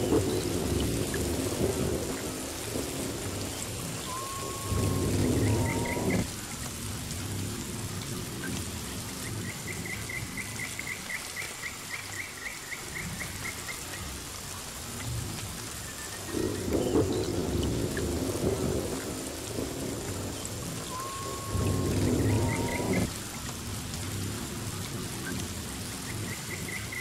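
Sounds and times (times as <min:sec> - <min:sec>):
steady rain: 0:00.0 - 0:27.0
low rumble: 0:04.4 - 0:06.3.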